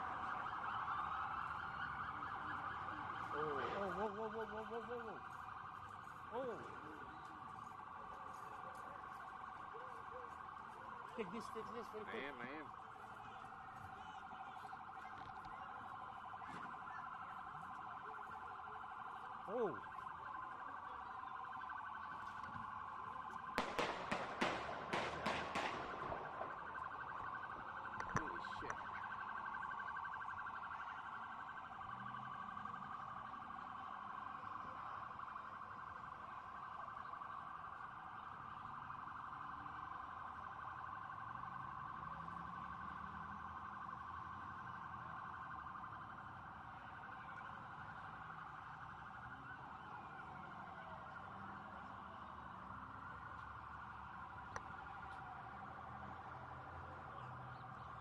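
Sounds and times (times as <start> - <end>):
emergency vehicle sirens: 0.0 - 58.0
sharp bangs: 23.6 - 26.6.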